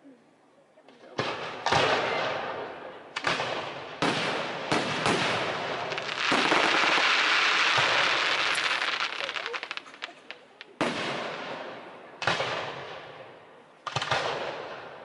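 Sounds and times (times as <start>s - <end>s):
firework shells bursting: 3.1s - 13.0s.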